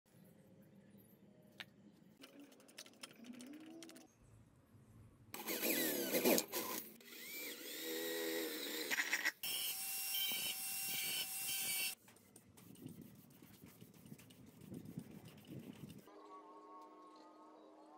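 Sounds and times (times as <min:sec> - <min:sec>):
electric drill boring through metal: 0:05.4 - 0:12.0.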